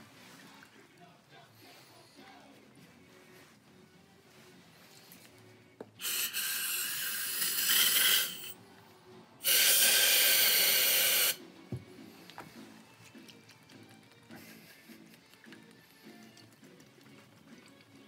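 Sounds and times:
aerosol spray hissing: 6.0 - 8.6, 9.4 - 11.4.

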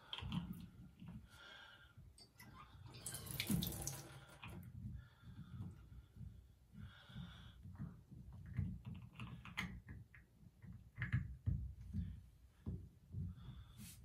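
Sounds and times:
shower water running: 2.5 - 4.6.

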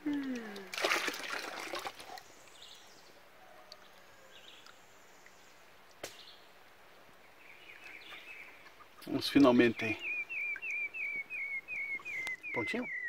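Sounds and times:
stream: 0.0 - 13.0
faint bird chirps: 7.4 - 13.0.

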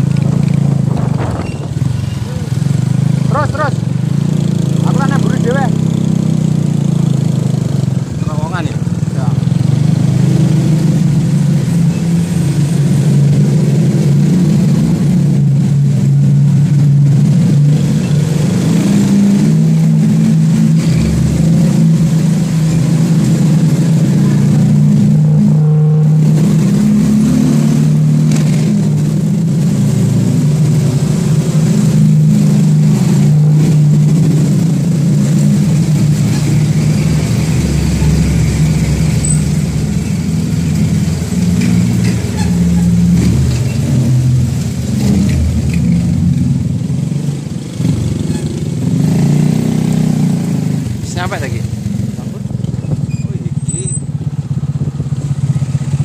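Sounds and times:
vehicle engine running: 0.0 - 56.0.

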